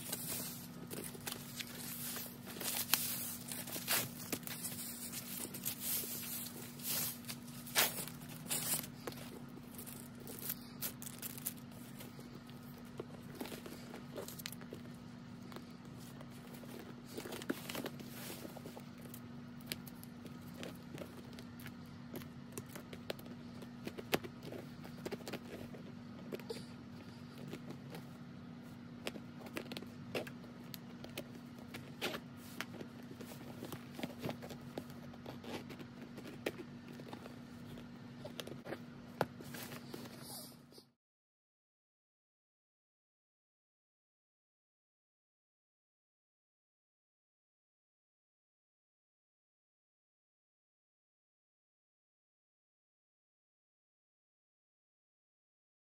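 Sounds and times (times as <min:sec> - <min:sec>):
packing wrap crinkling and tearing: 0:00.0 - 0:12.4
steady low hum: 0:00.0 - 0:40.9.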